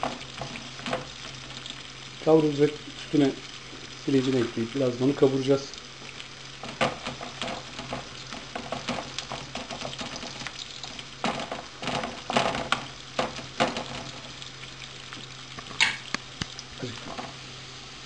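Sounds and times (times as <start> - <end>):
wooden spoon scraping a pan: 0.0 - 2.0, 6.0 - 14.4
onions sizzling in oil: 0.0 - 18.0.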